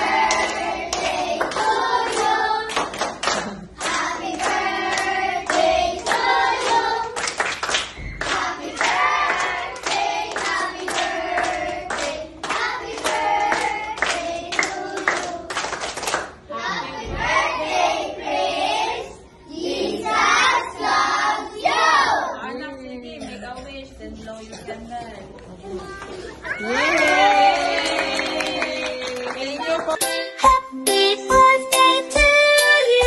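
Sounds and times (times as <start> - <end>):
children clapping: 0.2 - 16.4, 26.8 - 30.0.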